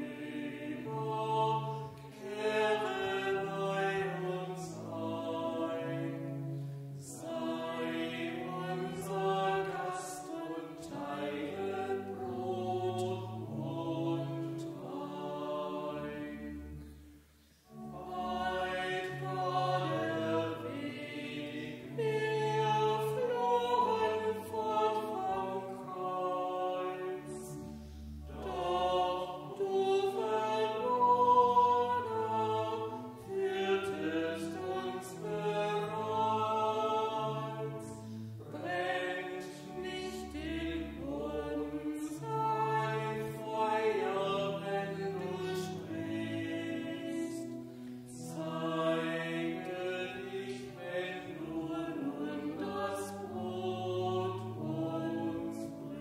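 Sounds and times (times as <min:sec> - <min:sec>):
choir singing in harmony: 0:00.0 - 0:56.0.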